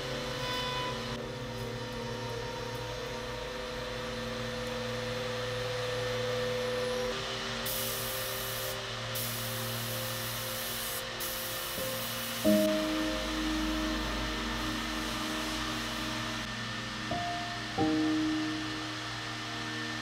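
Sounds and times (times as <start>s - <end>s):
electric router cutting wood: 0.0s - 20.0s
hissy cutting noise: 7.2s - 20.0s.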